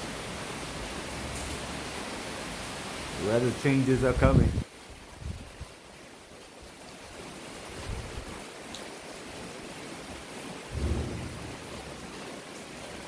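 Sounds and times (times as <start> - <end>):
wind gusts buffeting microphone: 4.1 - 5.6, 10.7 - 12.0
wind hissing: 10.7 - 12.0.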